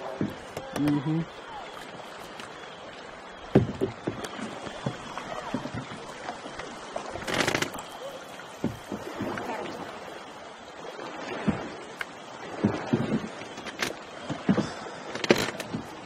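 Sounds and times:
paddle knocks: 0:00.0 - 0:02.5, 0:03.4 - 0:10.1, 0:11.2 - 0:16.0
water lapping along hull: 0:00.0 - 0:16.0
water splashing: 0:00.0 - 0:16.0.

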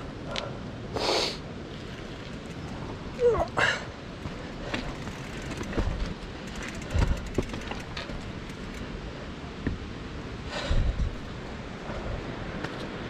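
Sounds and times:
bike tyres crunching on stones: 0:01.6 - 0:03.5, 0:04.1 - 0:08.9
wheels knocking over rocks: 0:01.7 - 0:03.5, 0:04.2 - 0:08.9
fast ticking: 0:04.9 - 0:08.8.

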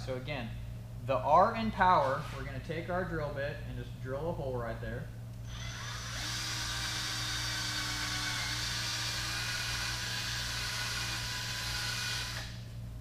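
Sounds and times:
power drill whining: 0:05.4 - 0:12.7.

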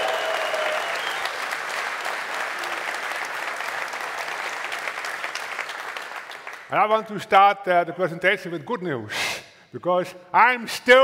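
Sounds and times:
crowd cheering: 0:00.0 - 0:05.7
audience applauding: 0:00.0 - 0:06.7.

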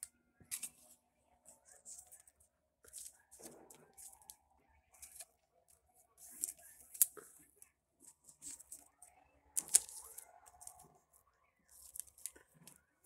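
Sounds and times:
cards rustling in plastic sleeves: 0:00.4 - 0:05.4, 0:06.1 - 0:07.5, 0:08.1 - 0:10.8, 0:11.7 - 0:12.8.

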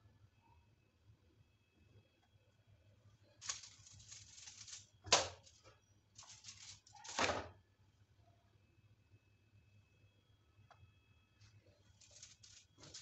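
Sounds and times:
aluminium foil crinkling: 0:03.4 - 0:07.3, 0:11.8 - 0:13.0.

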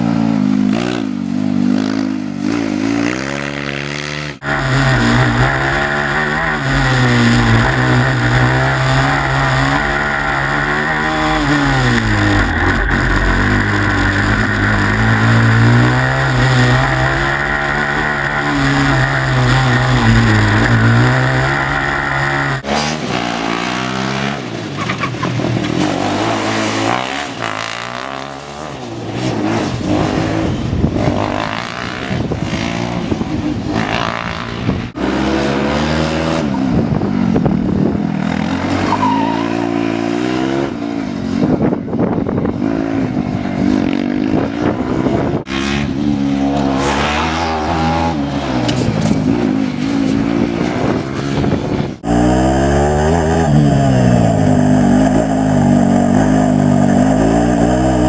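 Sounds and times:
race car engine revving: 0:02.6 - 0:24.5
race cars passing: 0:04.4 - 0:31.2.

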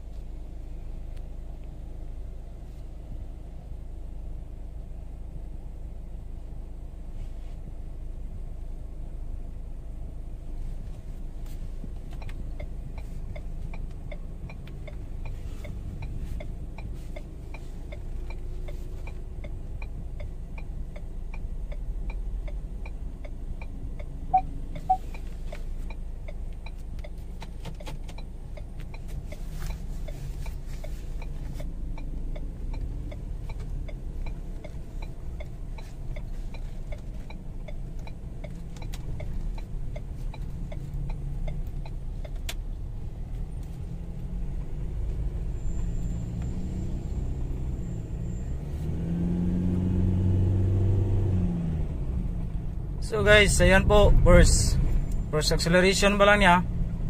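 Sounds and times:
diesel engine humming: 0:00.0 - 0:57.0
turn signal ticking: 0:00.0 - 0:57.0
short beeps: 0:24.3 - 0:25.1.

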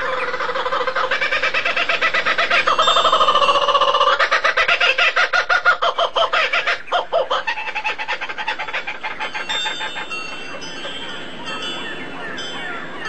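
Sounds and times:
fowl clucking rapidly: 0:00.0 - 0:10.6.

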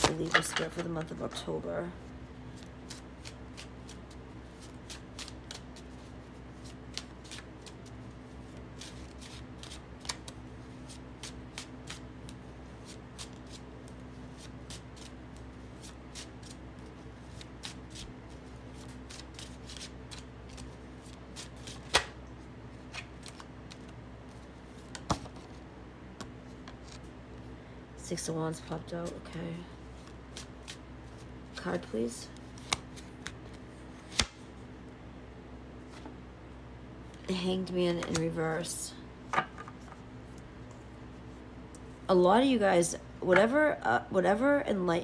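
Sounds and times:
cards being shuffled: 0:02.5 - 0:25.6, 0:26.2 - 0:27.1, 0:29.9 - 0:34.5
cards snapping: 0:21.4 - 0:22.2, 0:32.6 - 0:34.4.

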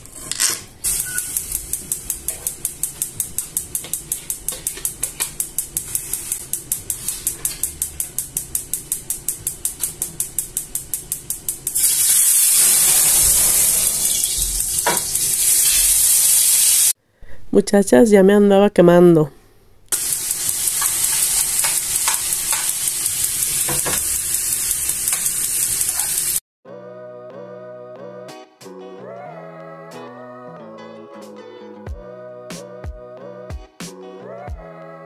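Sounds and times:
rapid even ticking: 0:00.8 - 0:11.8, 0:19.9 - 0:23.6
oil sizzling in a pan: 0:00.8 - 0:17.0, 0:19.9 - 0:26.4.

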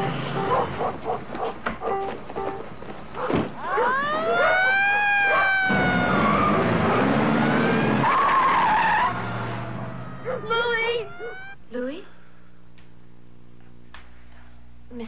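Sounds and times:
police siren wailing: 0:03.6 - 0:11.6
low steady hum: 0:09.7 - 0:15.0.

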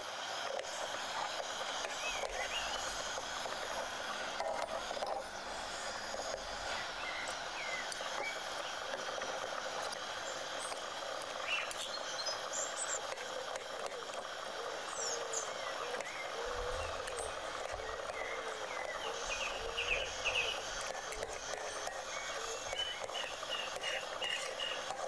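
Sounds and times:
steady hiss: 0:00.0 - 0:25.0
bird chirps: 0:14.9 - 0:20.7.

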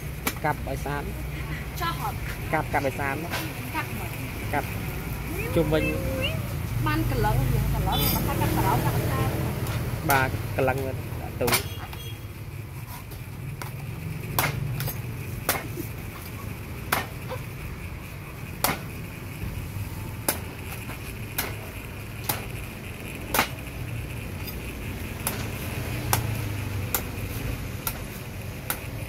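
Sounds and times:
cleaver chopping coconut: 0:00.0 - 0:00.6, 0:09.0 - 0:10.6, 0:11.3 - 0:12.0, 0:13.6 - 0:17.5, 0:18.6 - 0:19.0, 0:20.2 - 0:22.5, 0:23.2 - 0:23.6, 0:25.1 - 0:29.0.

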